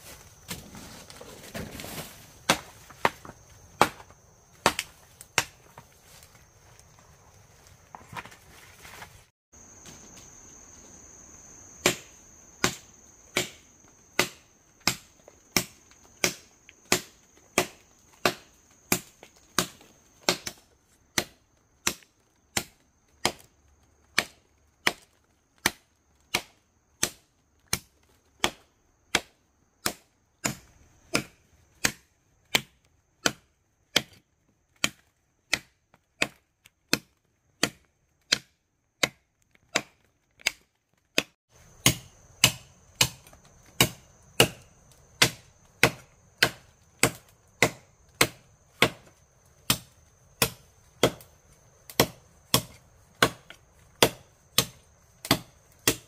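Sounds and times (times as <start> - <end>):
machete chopping into log: 1.5 - 5.6, 11.8 - 13.6, 14.2 - 20.6, 25.6 - 34.2, 34.8 - 40.6, 41.2 - 44.6, 45.2 - 49.1, 49.7 - 51.3, 51.9 - 56.0.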